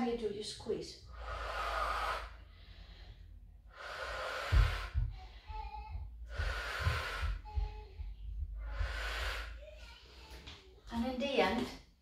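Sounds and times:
woman breathing heavily: 0:01.0 - 0:10.4
low thumps: 0:04.1 - 0:09.8.

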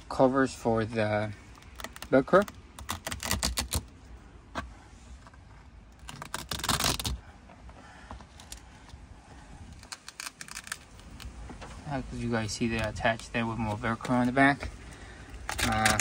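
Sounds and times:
velcro clicks and crackles: 0:01.4 - 0:04.0, 0:05.9 - 0:07.3, 0:08.3 - 0:09.0, 0:09.7 - 0:11.7, 0:15.3 - 0:16.0.

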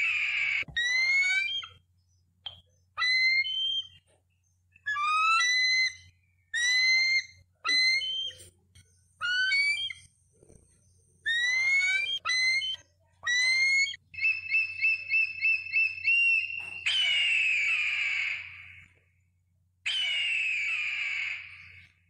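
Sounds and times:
eagle chattering chirps: 0:00.0 - 0:01.8, 0:02.5 - 0:04.1, 0:04.8 - 0:08.5, 0:09.2 - 0:10.1, 0:11.3 - 0:18.8, 0:19.9 - 0:21.9
eagle whistled calls: 0:00.0 - 0:04.1, 0:04.8 - 0:08.5, 0:09.2 - 0:10.1, 0:11.3 - 0:18.9, 0:19.9 - 0:22.0.

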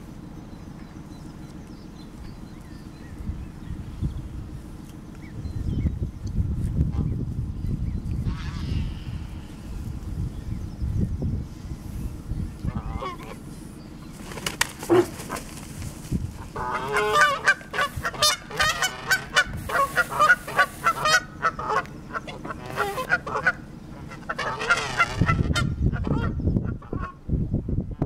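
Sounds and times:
geese honking: 0:08.2 - 0:09.2, 0:12.6 - 0:13.8, 0:14.8 - 0:27.2.

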